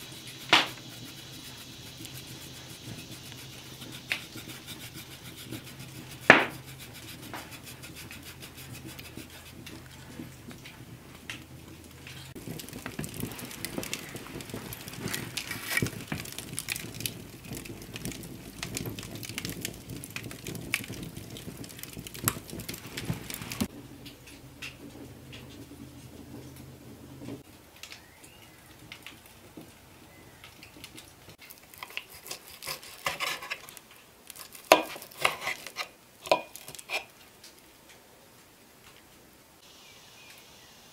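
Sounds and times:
wood fire crackling and popping: 0.0 - 39.1
knife and fork scraping plate: 31.8 - 33.7, 34.7 - 37.1.

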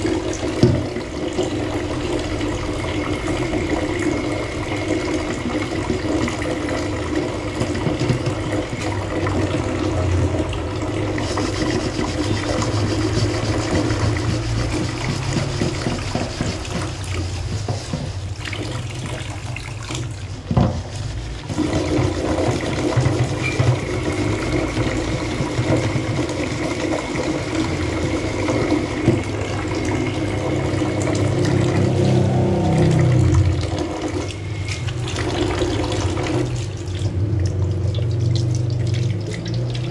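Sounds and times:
pot being scrubbed: 0.0 - 37.2
tap water running into sink: 0.0 - 39.9
knock: 13.6 - 18.1, 20.5 - 20.8.

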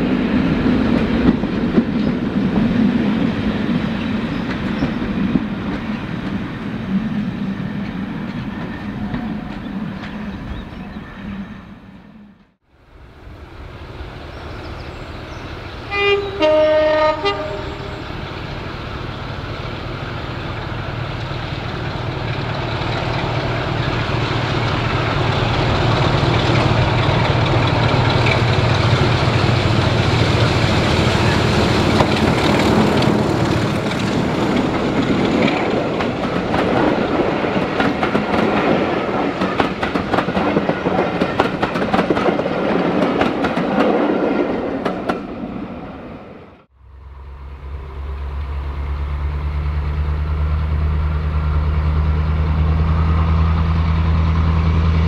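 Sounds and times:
diesel locomotive engine: 0.0 - 55.0
wheels clattering over rail joints: 21.2 - 45.3.

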